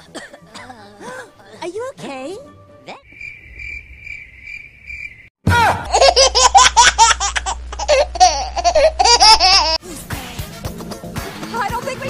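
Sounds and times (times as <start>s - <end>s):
crickets chirping: 3.0s - 5.3s
high-pitched laughter: 5.9s - 9.8s.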